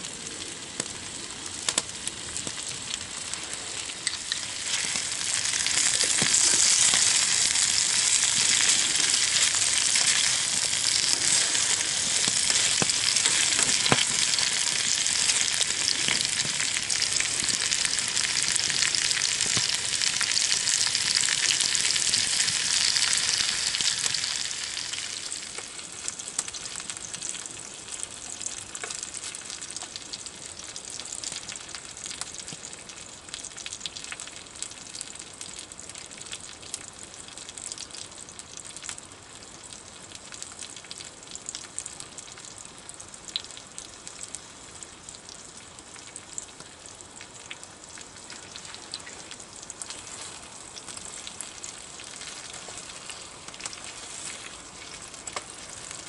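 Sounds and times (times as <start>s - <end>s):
vegetables sizzling in pan: 0.9s - 32.0s, 48.2s - 56.0s.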